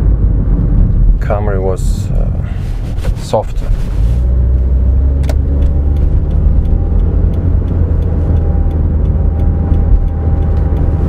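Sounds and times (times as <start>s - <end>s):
car cabin road rumble: 0.0s - 11.0s
sharp click: 5.2s - 8.4s.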